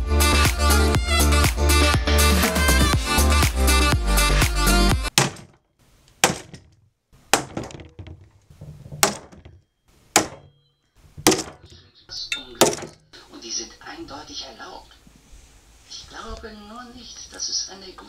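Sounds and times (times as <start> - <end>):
background music: 0.0 - 5.2.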